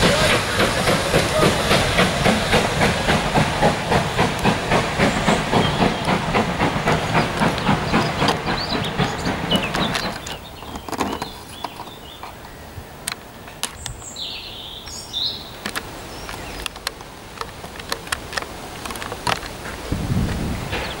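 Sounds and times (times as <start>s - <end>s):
sharp ticks and clicks: 0.3s - 12.4s, 14.8s - 19.6s
bird chirps: 7.1s - 12.7s, 13.8s - 16.7s.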